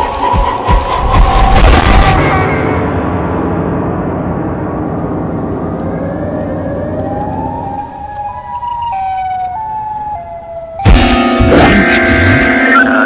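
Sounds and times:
low rumbling drone: 0.0s - 13.0s
siren tone: 5.4s - 13.0s.

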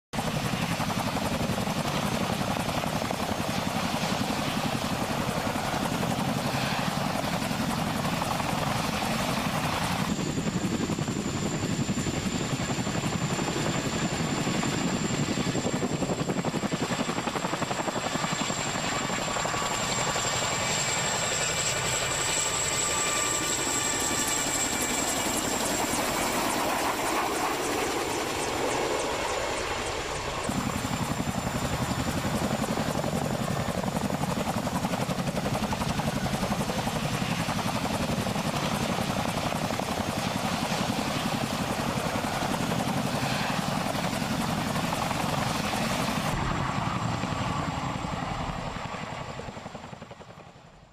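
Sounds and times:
helicopter rotor beat: 0.1s - 50.8s
helicopter turbine whine: 0.2s - 50.9s.

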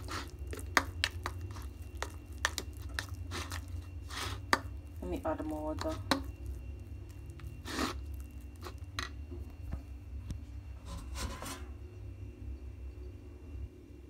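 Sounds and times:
metal spoon scraping porridge in bowl: 0.0s - 4.7s, 7.4s - 9.2s, 10.8s - 11.8s
steady low hum: 0.0s - 14.0s.

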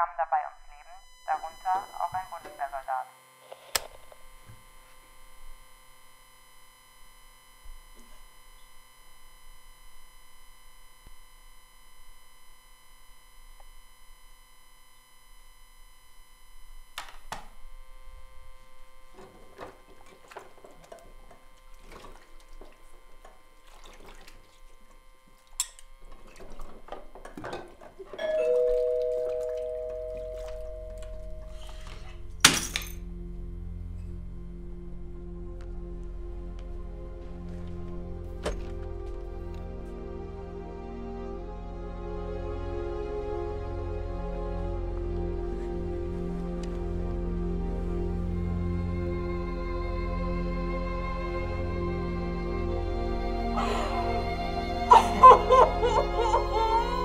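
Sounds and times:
two-tone doorbell ringing: 28.2s - 32.0s.

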